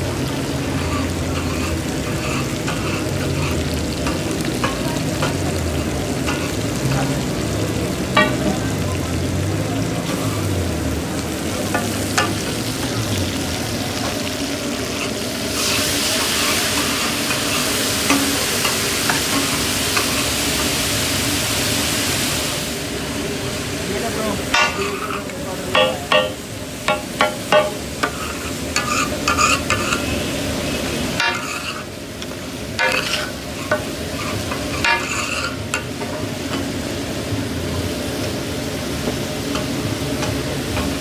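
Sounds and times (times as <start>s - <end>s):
chicken frying on griddle: 0.0s - 41.0s
loud steaming sizzle: 0.0s - 41.0s
metal spatula scraping griddle: 0.6s - 7.0s, 14.7s - 20.7s, 24.5s - 36.7s.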